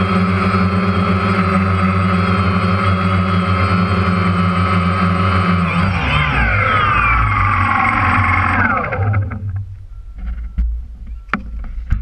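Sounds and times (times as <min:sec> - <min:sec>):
engine passing by: 0:00.0 - 0:09.6.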